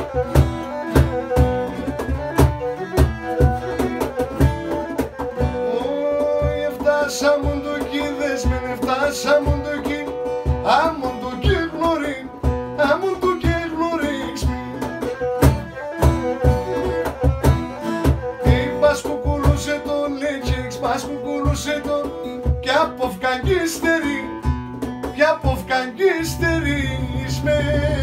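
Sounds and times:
bowed lyra melody: 0:00.0 - 0:05.4
acoustic guitar strumming: 0:00.0 - 0:28.0
cajon beat: 0:00.0 - 0:28.0.

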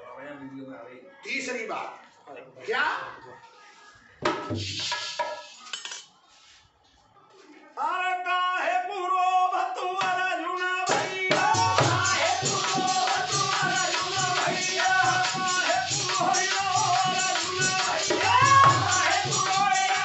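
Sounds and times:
dholak drum beat: 0:04.2 - 0:05.4, 0:10.8 - 0:20.0
man singing: 0:07.8 - 0:20.0
jingling hand percussion: 0:10.9 - 0:20.0.

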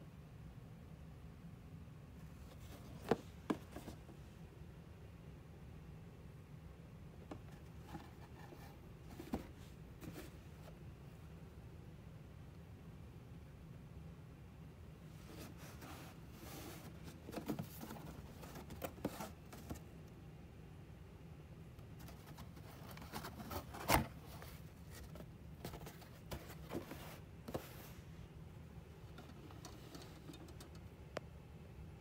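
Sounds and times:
cardboard box rustling and scraping: 0:15.2 - 0:19.9, 0:22.0 - 0:28.0.

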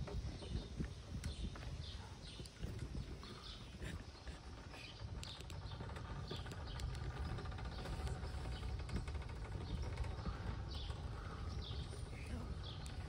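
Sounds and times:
steady low rumble: 0:00.0 - 0:13.0
faint clicks: 0:04.2 - 0:13.0.

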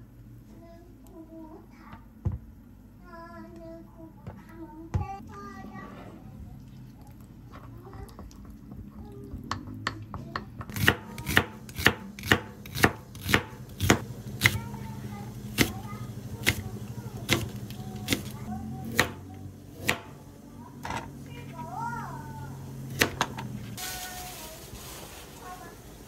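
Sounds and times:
knife chopping on plastic board: 0:10.6 - 0:14.6, 0:15.6 - 0:15.8, 0:17.3 - 0:19.2.

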